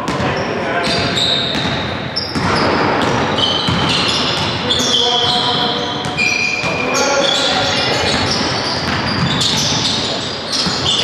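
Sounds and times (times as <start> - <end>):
shoes squeaking on court: 0.0 - 11.0
basketball bouncing: 0.9 - 6.8, 7.7 - 11.0
players calling out: 3.4 - 11.0.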